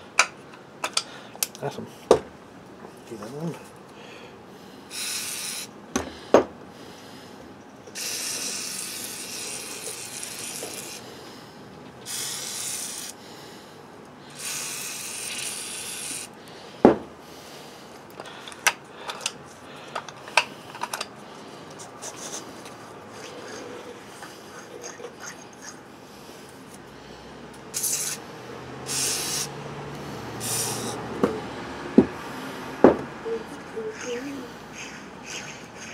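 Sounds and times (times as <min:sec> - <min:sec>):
aerosol spray bursts: 0:04.9 - 0:05.7, 0:08.0 - 0:11.0, 0:12.1 - 0:13.2, 0:14.4 - 0:16.3, 0:27.8 - 0:28.2, 0:28.9 - 0:29.6, 0:30.4 - 0:31.0.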